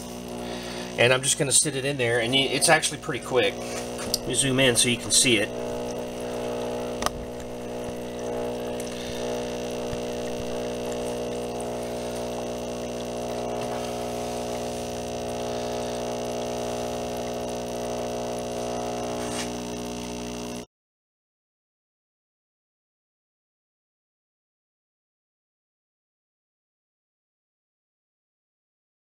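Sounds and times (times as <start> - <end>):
air bubbling through liquid: 0.0 - 1.0, 3.4 - 20.6
air pump humming: 0.0 - 20.7.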